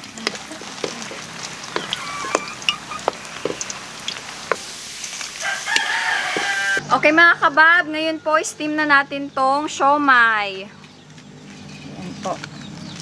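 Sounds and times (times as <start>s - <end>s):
deep-frying in hot oil: 0.0s - 6.8s.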